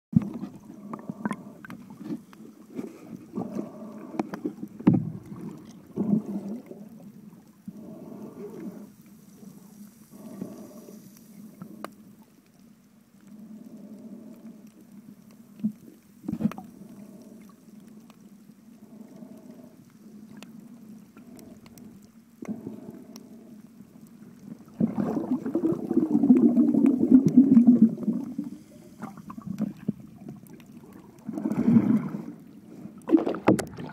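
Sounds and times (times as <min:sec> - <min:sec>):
muffled underwater gurgling: 0:24.6 - 0:32.4.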